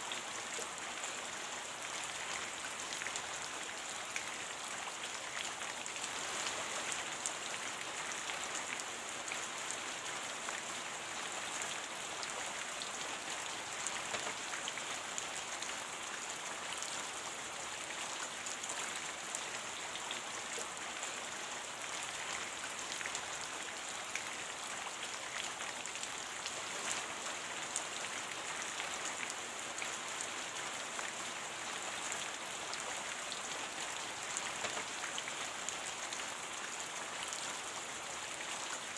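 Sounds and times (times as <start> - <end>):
steady rain hiss: 0.0 - 38.9.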